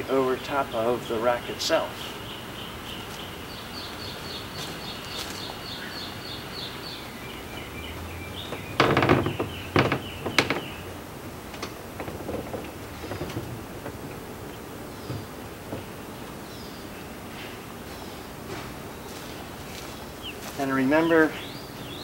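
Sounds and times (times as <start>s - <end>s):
bird chirping: 0.0s - 22.0s
canoe hull knocking on wood: 8.5s - 10.9s.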